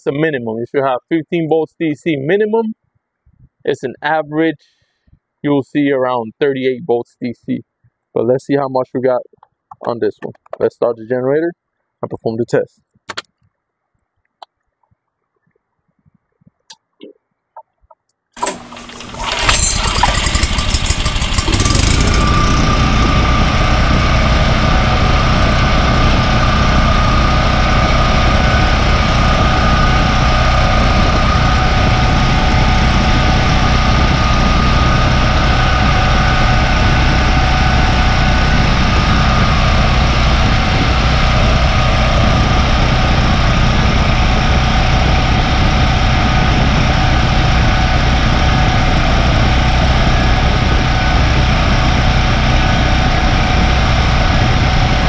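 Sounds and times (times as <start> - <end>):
generator engine running: 18.4 - 55.0.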